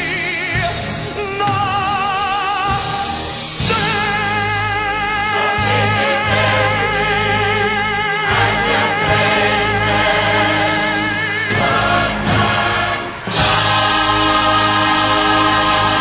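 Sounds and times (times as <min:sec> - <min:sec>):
choir singing with vibrato: 0:00.0 - 0:16.0
orchestra sustained chords: 0:03.4 - 0:16.0.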